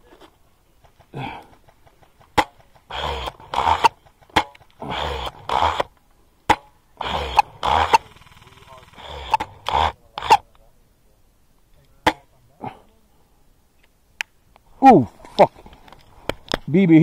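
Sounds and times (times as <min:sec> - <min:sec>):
airsoft gun shots: 0:06.5 - 0:08.1
loud bursts of noise: 0:07.0 - 0:10.4.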